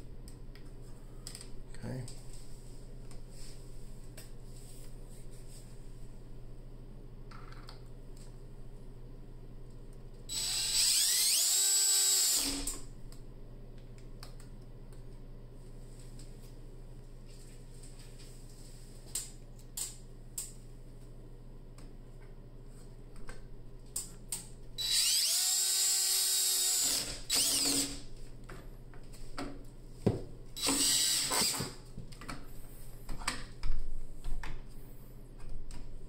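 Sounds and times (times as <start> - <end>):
cordless drill drilling: 10.3 - 12.8, 24.8 - 28.0, 30.6 - 31.8.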